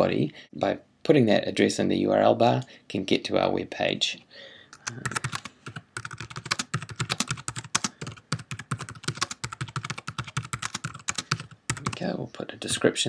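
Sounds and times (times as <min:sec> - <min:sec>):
typing on a keyboard: 0:04.8 - 0:12.0.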